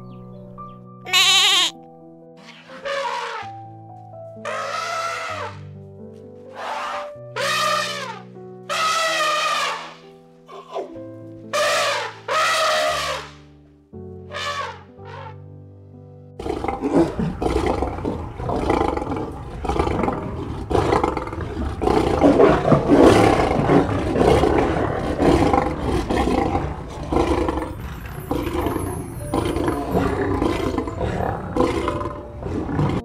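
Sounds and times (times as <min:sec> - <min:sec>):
lion roaring: 0:04.4 - 0:05.6, 0:16.4 - 0:33.0.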